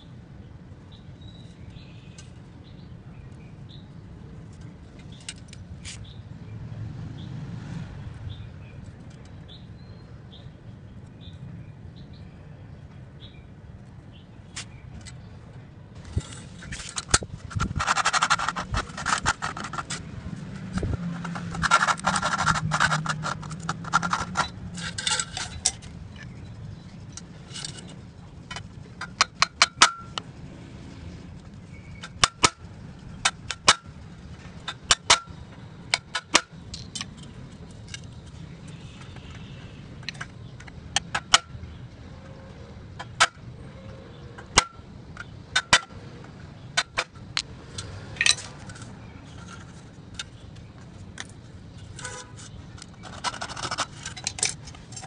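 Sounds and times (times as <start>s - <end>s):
scratching and rustling: 16.0s - 29.2s, 46.9s - 55.0s.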